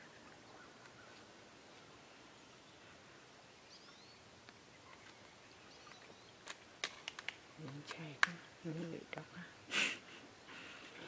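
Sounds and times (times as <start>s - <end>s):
faint bird chirps: 0.0s - 6.4s
even hiss: 7.2s - 11.0s.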